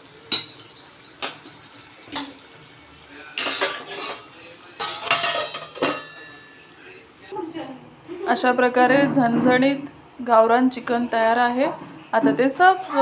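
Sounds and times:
spatula scraping and stirring in pan: 2.1 - 6.7.

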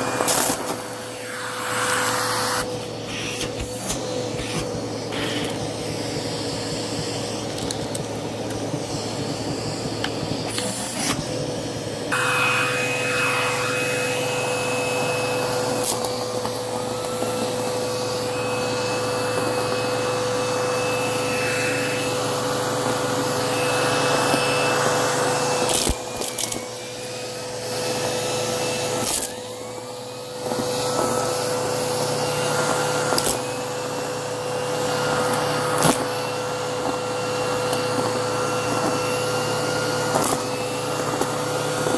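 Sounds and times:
vacuum cleaner running: 0.0 - 41.9.

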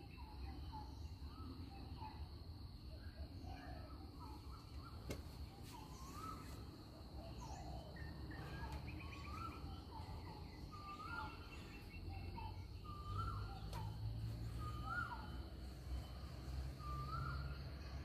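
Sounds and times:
birds chirping: 0.0 - 18.0
high insect hum: 0.0 - 18.0
bird whistling: 5.7 - 6.7, 7.3 - 17.8.

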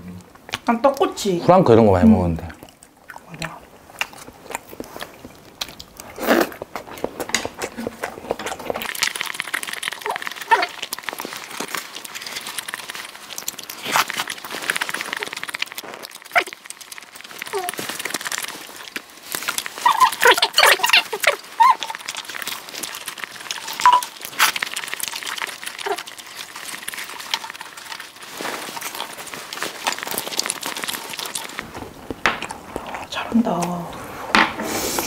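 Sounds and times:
chewing and mouth noises: 2.4 - 33.8.

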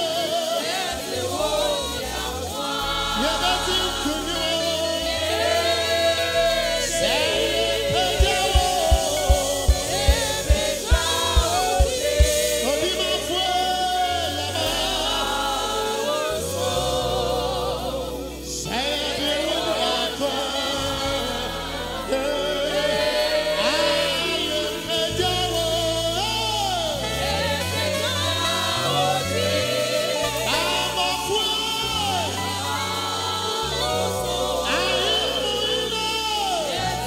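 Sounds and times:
gospel choir singing with band: 0.0 - 37.0
loud low beats: 7.1 - 13.1.

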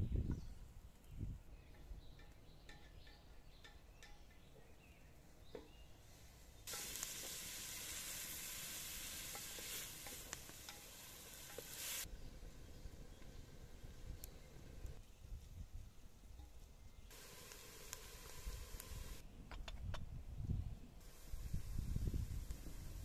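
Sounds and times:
onion sizzling in oil: 6.6 - 15.0, 17.1 - 19.2, 21.0 - 23.0
wooden spoon stirring in pot: 6.7 - 12.1.

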